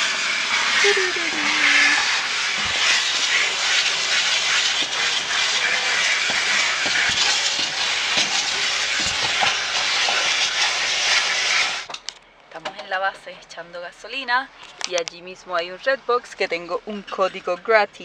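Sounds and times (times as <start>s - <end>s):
vacuum hose air hiss: 0.0s - 11.9s.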